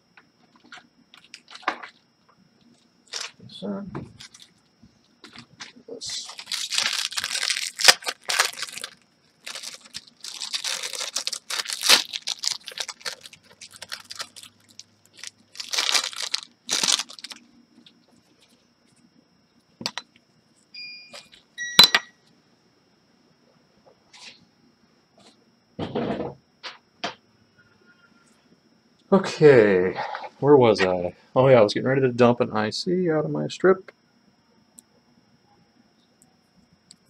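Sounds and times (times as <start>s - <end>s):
crinkling and rustling: 0.4s - 19.0s
short high beeps: 20.8s - 22.1s.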